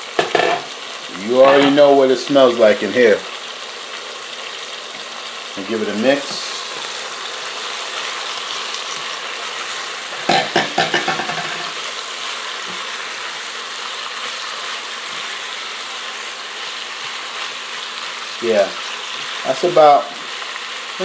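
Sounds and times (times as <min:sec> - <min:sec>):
chicken sizzling in a pot: 0:00.0 - 0:21.0
spatula knocking and scraping pot: 0:00.2 - 0:00.7, 0:10.2 - 0:11.8.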